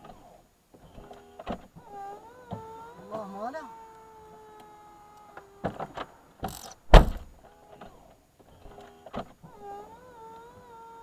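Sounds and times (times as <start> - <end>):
tailgate motor whine: 0.0 - 11.0
tailgate slamming thuds: 5.6 - 8.0.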